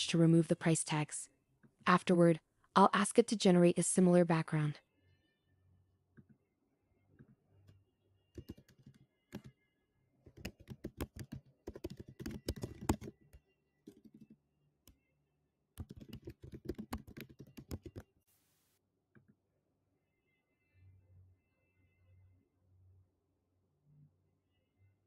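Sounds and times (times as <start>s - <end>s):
computer keyboard typing: 8.4s - 9.6s, 10.3s - 14.4s, 15.8s - 18.1s.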